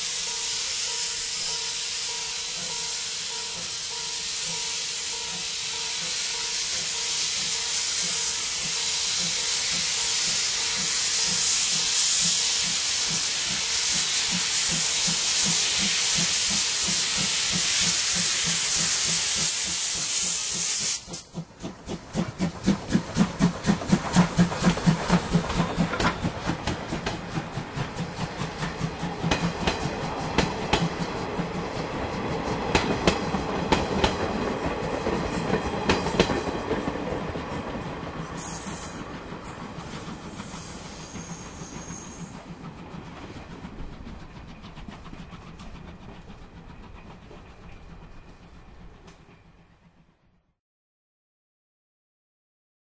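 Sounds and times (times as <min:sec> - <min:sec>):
loud steam hiss: 0:00.0 - 0:31.7, 0:38.3 - 0:42.4
steam locomotive exhaust chuffs: 0:00.0 - 0:50.5.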